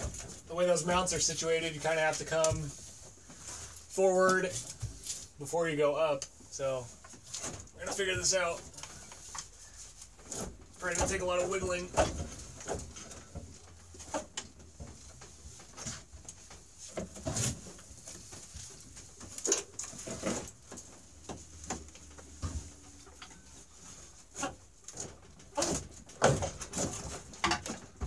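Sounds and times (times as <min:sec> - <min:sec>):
metal clunks and knocks: 0:24.4 - 0:28.0.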